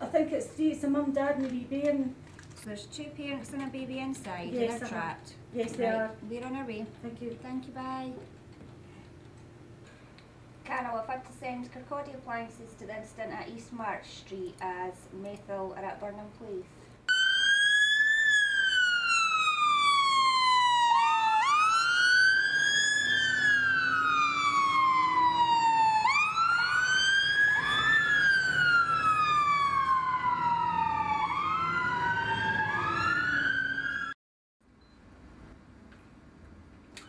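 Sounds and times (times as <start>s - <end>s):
fire engine sirens wailing: 17.1s - 34.2s.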